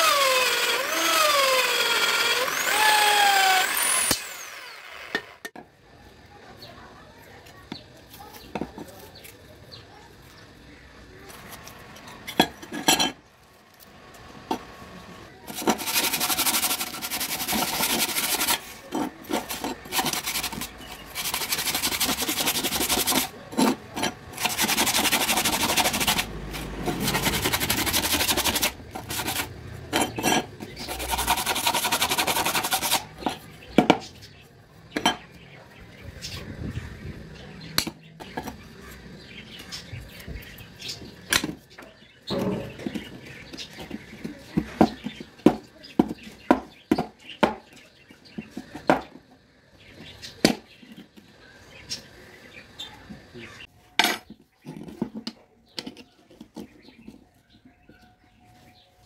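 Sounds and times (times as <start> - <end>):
sandpaper scraping sheet metal: 15.4 - 33.6.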